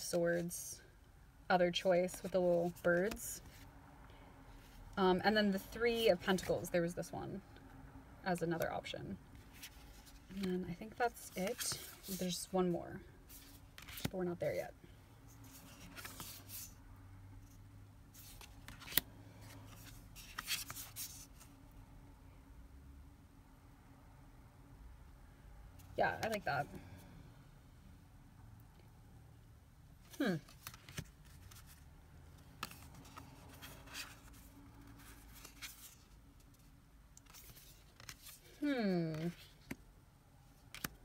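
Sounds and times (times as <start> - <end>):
cards sliding and brushing: 9.3 - 10.4, 11.3 - 12.5, 13.3 - 14.2, 15.3 - 16.8, 17.5 - 21.5, 30.4 - 39.8.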